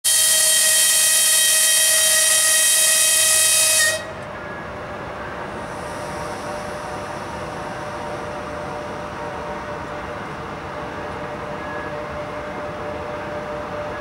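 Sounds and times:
locomotive air whistle: 0.1s - 4.6s.

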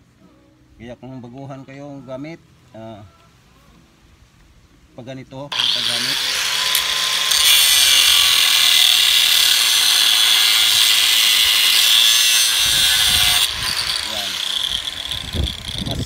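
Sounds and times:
angle grinder cutting steel: 5.5s - 16.0s.

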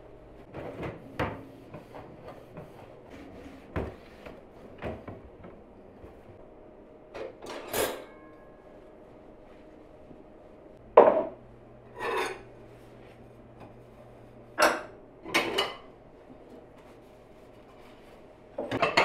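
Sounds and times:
cloth wiping cabinets: 1.0s - 6.4s, 16.1s - 18.5s.

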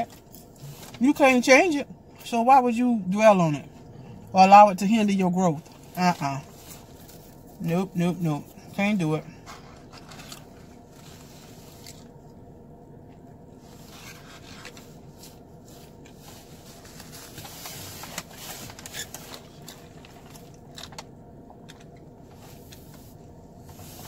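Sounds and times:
low hum inside a car: 0.0s - 24.0s
paper packaging rustling: 16.5s - 21.0s.

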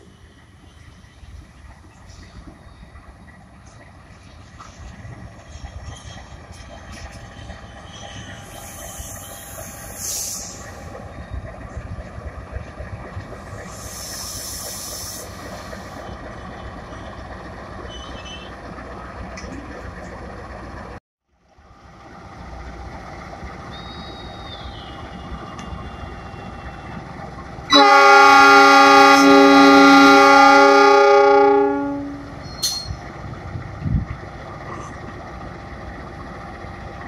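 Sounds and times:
diesel locomotive rumbling: 0.0s - 37.0s
short hisses: 8.5s - 10.7s, 13.6s - 16.0s
multi-tone train horn: 27.7s - 32.4s.

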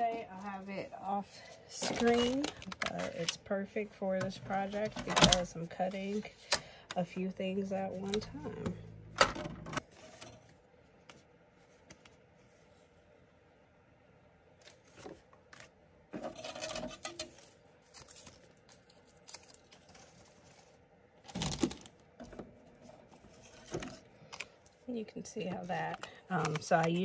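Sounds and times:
paper being handled: 0.1s - 3.4s, 25.4s - 27.0s.

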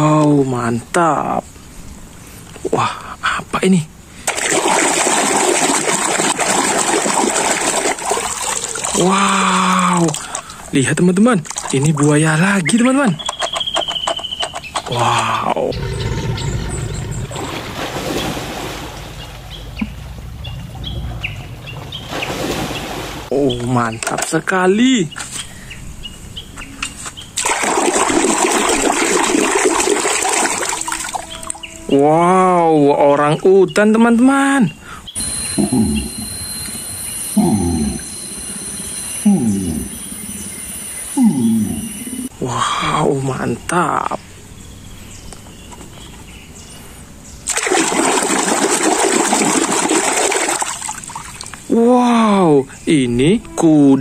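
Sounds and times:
running water rushing: 4.2s - 10.8s, 27.4s - 31.6s, 47.5s - 51.7s.

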